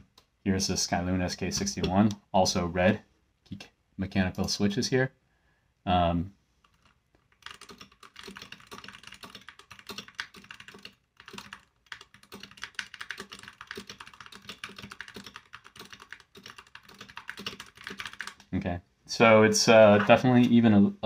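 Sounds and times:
typing on mechanical keyboard: 0:06.7 - 0:18.5.

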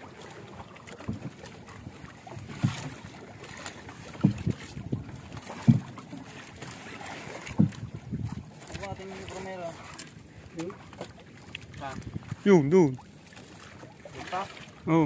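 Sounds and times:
water washing: 0:00.0 - 0:15.0
wind: 0:00.0 - 0:15.0
thumps on wooden boat: 0:01.0 - 0:01.4, 0:02.4 - 0:03.1, 0:04.1 - 0:06.3, 0:07.4 - 0:08.4.

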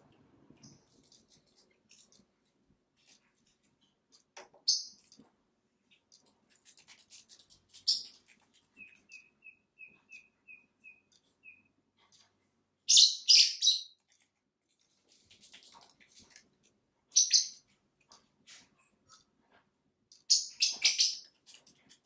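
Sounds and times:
lovebirds chirping: 0:07.7 - 0:12.2.

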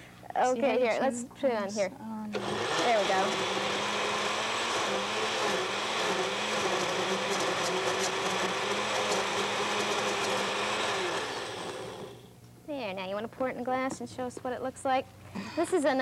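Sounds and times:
blender running: 0:02.4 - 0:12.3.

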